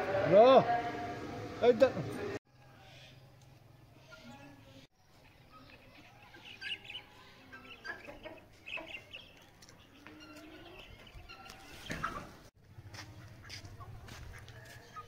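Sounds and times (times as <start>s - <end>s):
chickens clucking: 5.1s - 15.0s
loud scuffing noise: 12.8s - 14.9s.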